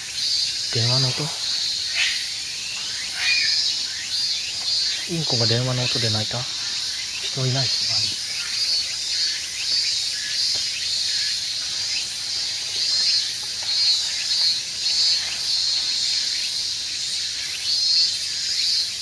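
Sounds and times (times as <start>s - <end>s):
insects chirping: 0.0s - 19.0s.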